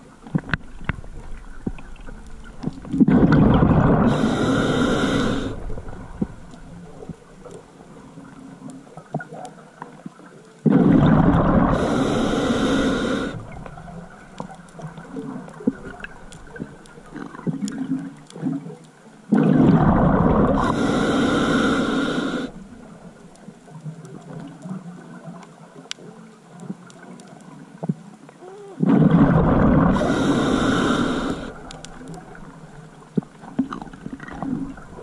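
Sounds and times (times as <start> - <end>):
faint ticks: 0.0 - 3.1, 4.2 - 10.8, 11.7 - 19.5, 20.5 - 28.8, 29.9 - 35.0
underwater breath bubbling: 2.6 - 7.2, 10.6 - 18.6, 19.3 - 22.8, 28.4 - 32.6.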